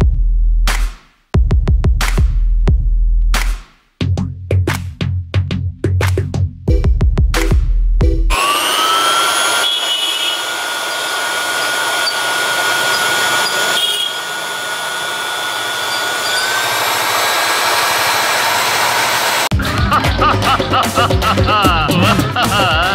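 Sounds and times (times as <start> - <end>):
fan whine and rushing hiss: 8.3 - 19.5.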